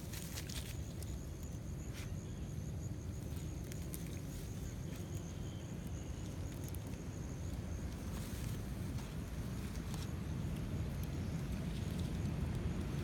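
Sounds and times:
faint rustles and clicks: 0.0 - 2.5, 3.1 - 5.4
wind rumble on microphone: 2.7 - 13.0.

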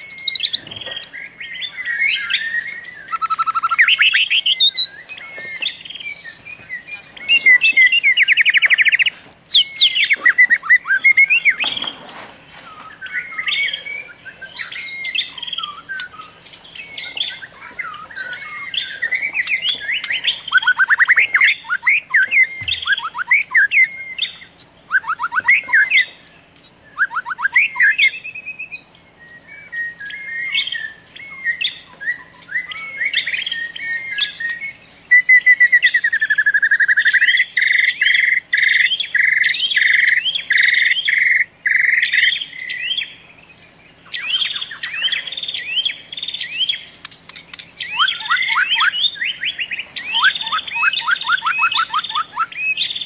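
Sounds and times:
birds chirping and trilling: 0.0 - 53.0
bird swooping call: 47.8 - 53.0.

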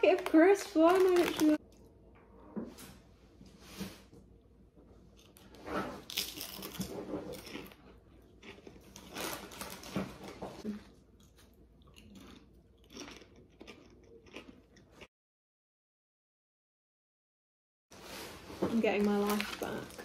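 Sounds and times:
crisps crunching in mouth: 0.0 - 1.6, 6.0 - 10.2, 11.2 - 15.1
quiet chewing: 10.6 - 15.1.

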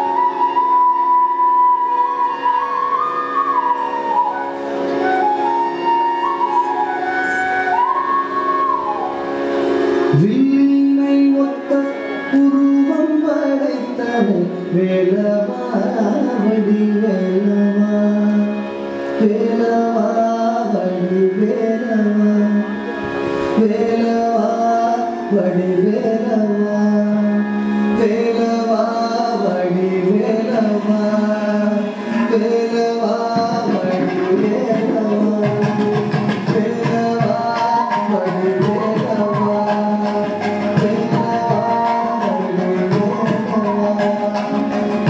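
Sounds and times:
sung gliding melody: 0.0 - 45.0
hand drum strokes: 33.3 - 45.0.

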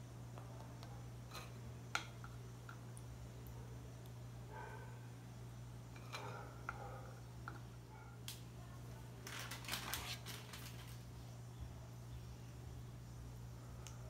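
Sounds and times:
steady low hum: 0.0 - 14.0
metal spoon clinking and scraping: 5.9 - 6.4.

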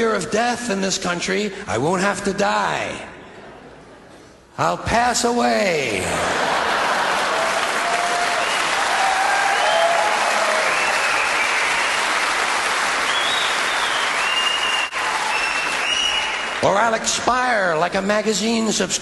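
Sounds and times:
audience cheering: 6.1 - 16.7
audience applauding: 6.1 - 16.8.

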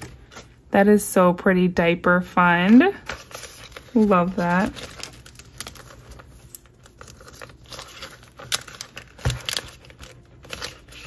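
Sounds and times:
plastic pockets crinkling: 2.7 - 11.0.

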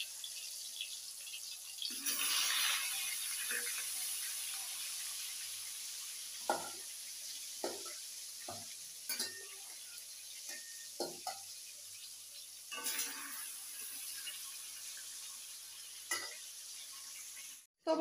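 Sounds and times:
fish sizzling in hot oil: 0.0 - 17.7.

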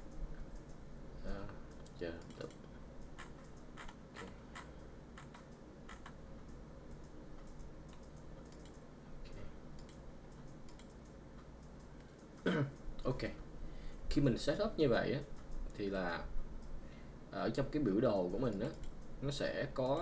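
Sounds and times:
faint low hum: 0.0 - 20.0
mouse and keyboard clicks: 1.7 - 8.8.

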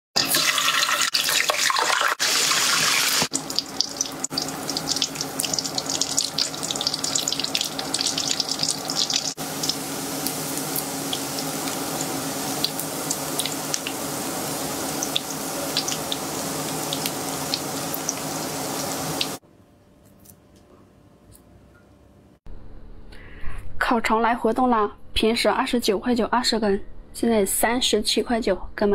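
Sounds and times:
sausages sizzling in oil: 0.2 - 19.4.

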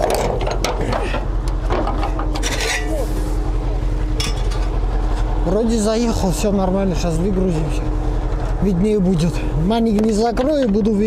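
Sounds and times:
truck knocks and rattles: 0.0 - 2.8, 9.8 - 11.0
truck diesel engine running: 0.0 - 11.0.

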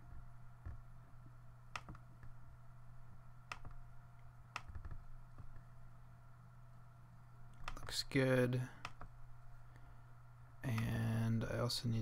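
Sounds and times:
low steady background hum: 0.0 - 12.0
computer mouse clicks: 1.7 - 2.4, 3.4 - 3.8, 4.5 - 5.7, 7.5 - 7.9, 8.8 - 9.2.

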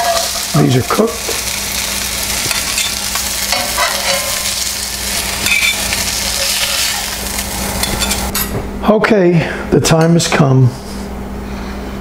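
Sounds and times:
fish sizzling in hot oil: 0.0 - 8.3
metal spatula scraping pan: 2.8 - 4.5, 5.4 - 7.0.

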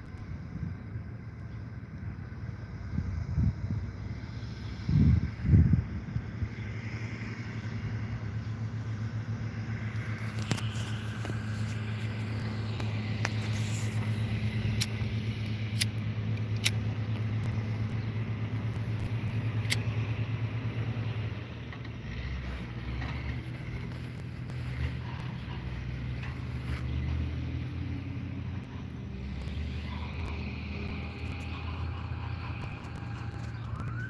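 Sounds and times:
low engine hum: 0.0 - 34.0
sharp clicks: 10.3 - 18.0, 18.6 - 19.9.

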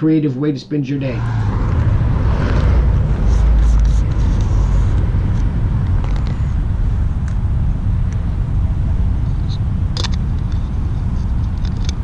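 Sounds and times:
wind: 0.0 - 12.0
road traffic rumble: 0.9 - 12.0.

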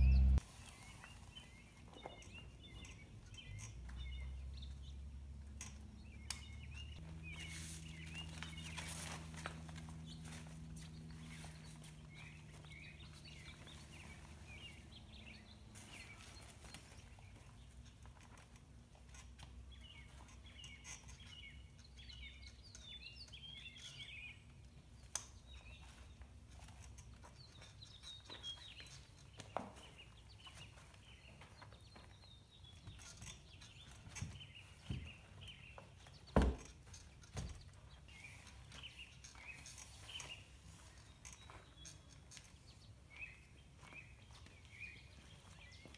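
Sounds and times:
faint low hum: 0.0 - 0.4
birds chirping: 0.0 - 18.4, 19.1 - 45.9.

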